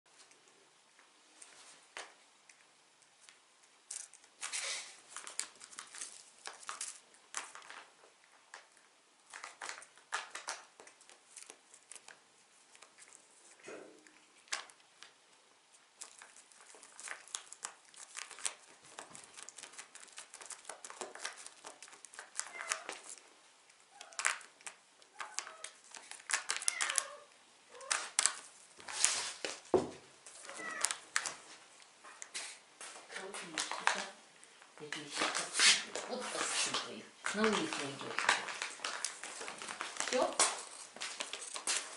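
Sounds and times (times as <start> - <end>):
foil pouches crinkling: 34.9 - 41.9.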